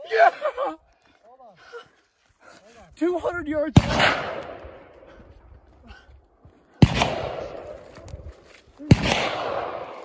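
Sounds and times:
rifle shot with rolling echo: 3.8s - 5.1s, 6.8s - 8.0s, 8.8s - 10.0s.

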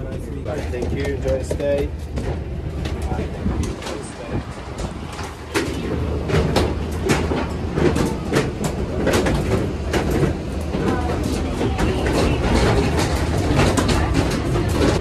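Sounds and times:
footsteps and knocks in jet bridge: 0.0s - 15.0s
steady low rumble: 0.0s - 15.0s.

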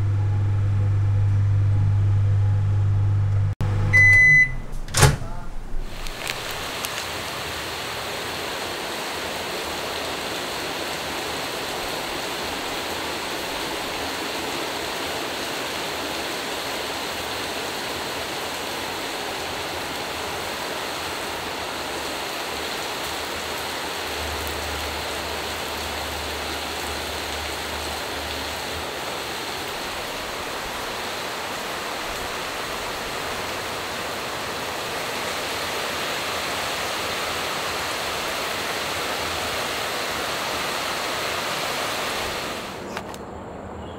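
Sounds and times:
faint low hum: 0.0s - 5.9s
rushing water hiss: 5.9s - 43.0s.

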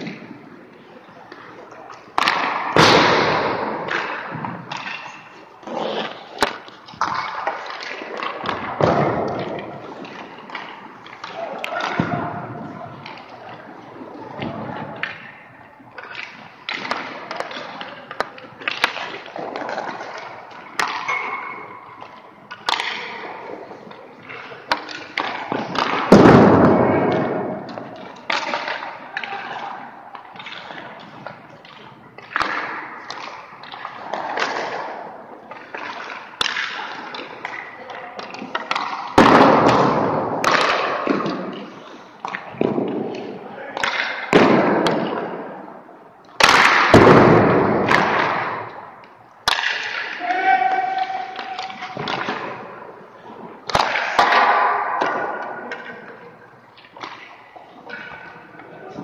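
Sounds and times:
skates scraping ice: 0.0s - 15.4s, 16.0s - 26.2s
pucks and sticks thudding: 0.0s - 59.0s.

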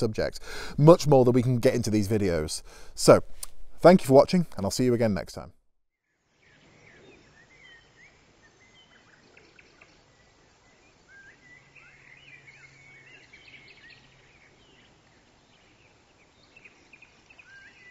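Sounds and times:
low outdoor hiss: 0.0s - 5.5s, 6.1s - 17.9s
birds chirping and warbling: 6.1s - 17.9s.

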